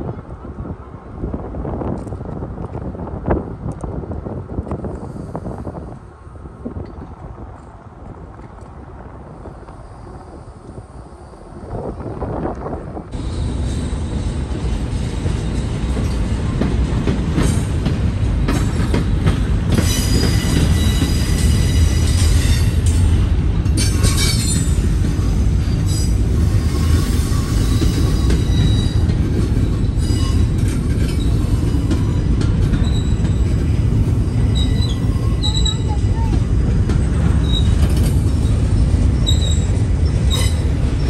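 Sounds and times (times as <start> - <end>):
train wheels rumbling on rail: 0.0 - 41.0
high-pitched wheel squeals: 23.8 - 33.6, 34.2 - 36.0, 37.4 - 40.8.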